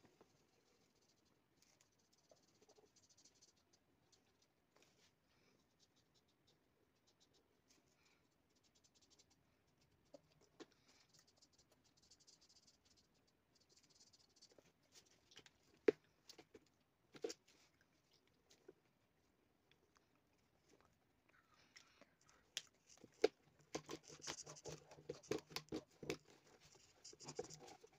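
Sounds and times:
marker scratching on paper: 0:23.7 - 0:27.9.

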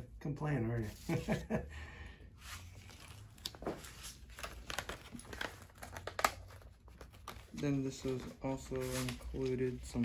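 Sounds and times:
packaging rustling and crinkling: 0:02.6 - 0:10.0.

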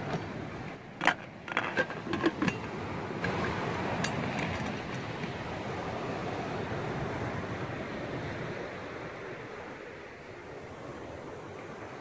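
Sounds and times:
wind: 0:00.0 - 0:12.0
metal lid clinks and clicks: 0:01.0 - 0:05.0.

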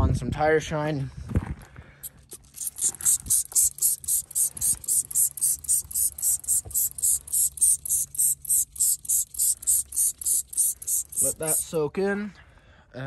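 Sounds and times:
spray bottle hissing spurts: 0:02.0 - 0:11.8.

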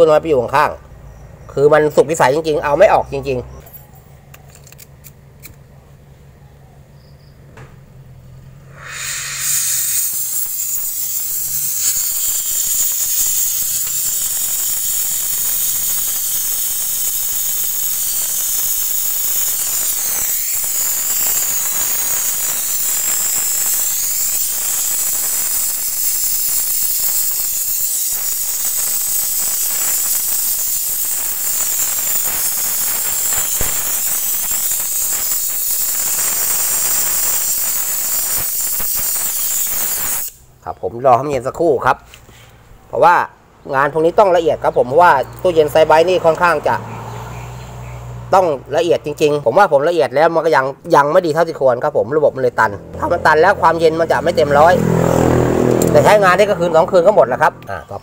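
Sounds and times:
brazing torch hissing: 0:08.5 - 0:40.6.

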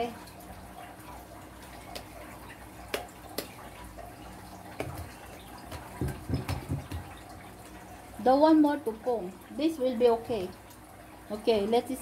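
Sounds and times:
dough squelching and slapping: 0:01.8 - 0:03.8, 0:04.8 - 0:07.5.

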